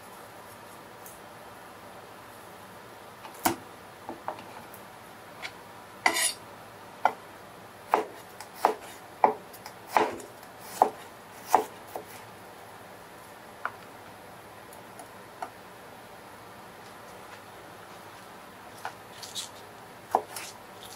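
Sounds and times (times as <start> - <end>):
knife scraping on board: 5.4 - 6.4.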